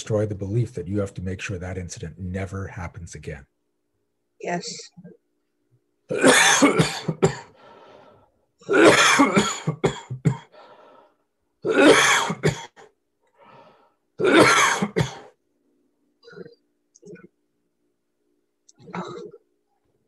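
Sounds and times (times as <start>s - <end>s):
man coughing: 6.1s - 7.5s, 8.7s - 10.5s, 11.6s - 12.8s, 14.2s - 15.3s
man breathing in: 7.5s - 8.4s, 10.5s - 11.3s, 13.3s - 14.0s.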